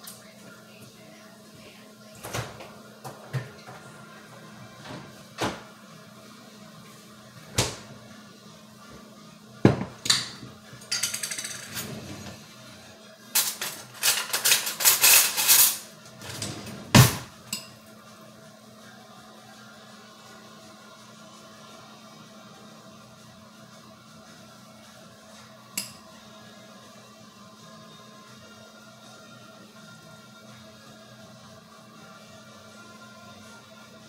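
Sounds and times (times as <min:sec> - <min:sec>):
glass jars knocking on countertop: 0:09.7 - 0:10.0.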